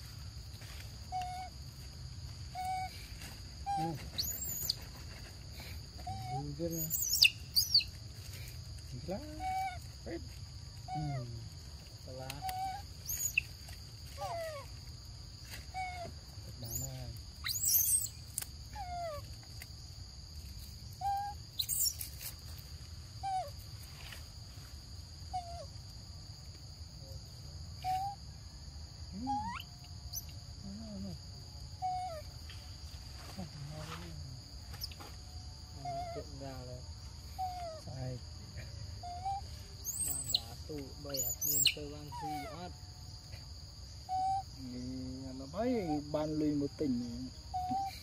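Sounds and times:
high insect drone: 0.0s - 48.0s
short pitched calls: 2.4s - 5.0s, 5.6s - 8.0s, 12.2s - 14.8s, 15.6s - 19.2s, 21.0s - 22.2s, 39.0s - 42.6s
sharp high chirps: 6.7s - 8.0s, 16.7s - 18.3s, 21.1s - 22.1s, 39.2s - 41.9s.

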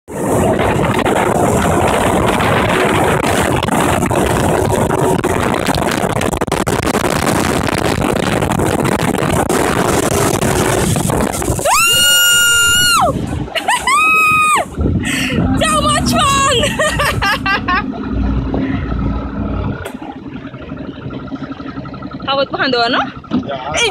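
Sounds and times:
motorboat engine running: 0.1s - 23.9s
rush of wake water: 0.1s - 23.9s
wind on microphone: 0.1s - 23.9s.

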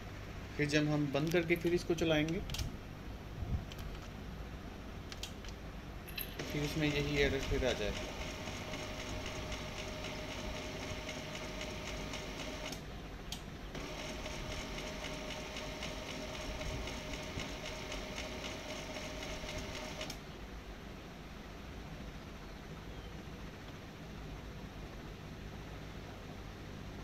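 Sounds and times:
printer mechanism whine: 6.4s - 12.8s, 13.8s - 20.2s.

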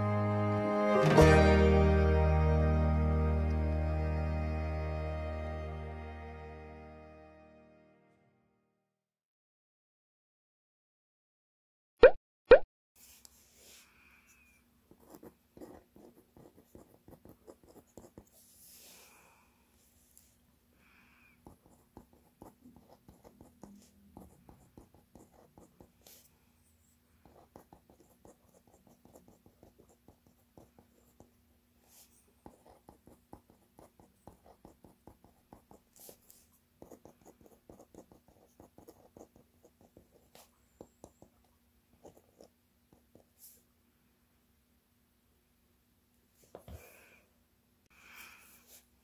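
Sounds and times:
pen scratching on paper: 14.9s - 18.8s, 21.4s - 26.2s, 27.2s - 31.3s, 31.9s - 41.3s.

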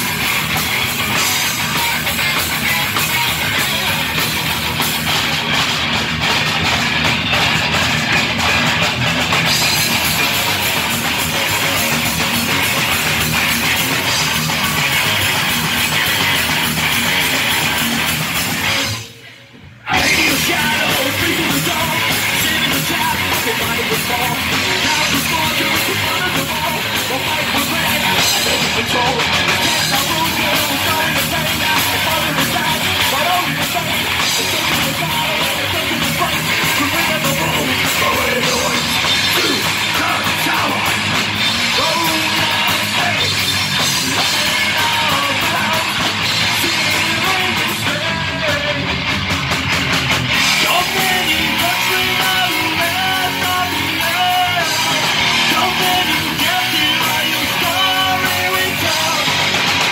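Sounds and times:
bass guitar: 0.0s - 59.9s
distorted electric guitars: 0.0s - 59.9s
drum kit: 0.0s - 59.9s
vocalist shouting: 36.8s - 40.9s.

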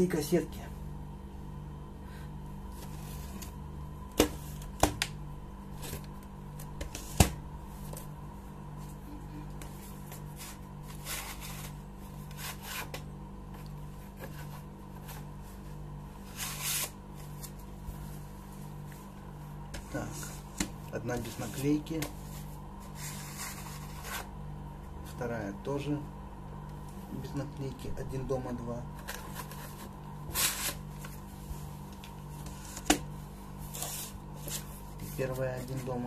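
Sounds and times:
steady low hum: 0.0s - 36.0s
rubbing and rustling: 9.6s - 24.4s.

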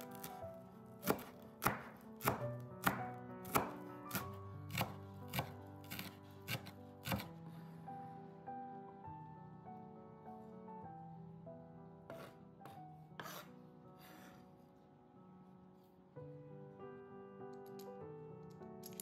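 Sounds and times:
knife chopping herbs on wooden board: 0.0s - 0.4s, 1.0s - 7.3s, 12.1s - 14.2s.

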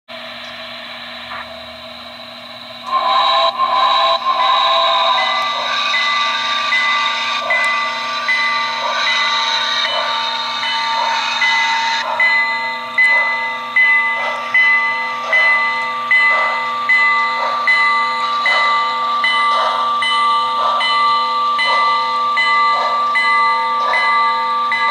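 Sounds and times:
model steam locomotive chuffing: 0.1s - 24.9s
steam hiss and tones: 0.1s - 24.9s.

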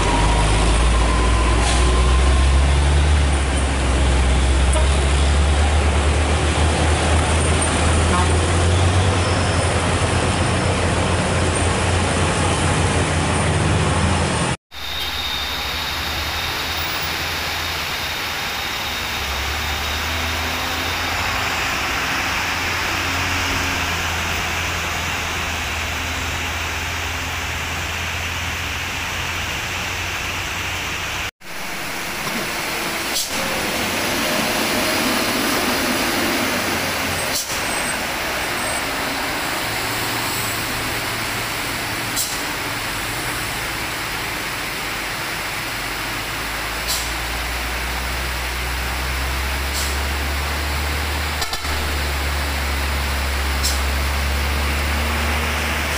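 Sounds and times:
dump truck passing: 0.0s - 55.9s
heavy diesel trucks droning: 0.0s - 55.9s
steady rain hiss: 14.8s - 55.9s.

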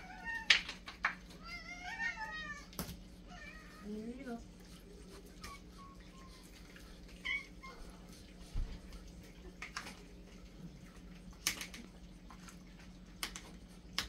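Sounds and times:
cat meowing: 1.4s - 2.7s.

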